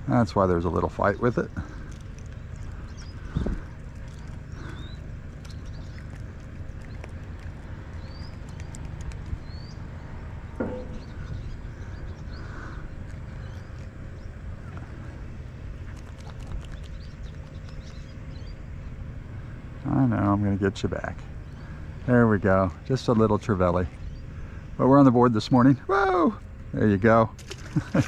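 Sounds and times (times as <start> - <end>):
low outdoor rumble: 0.0 - 28.0
bird chirping: 0.9 - 15.2, 15.8 - 19.0.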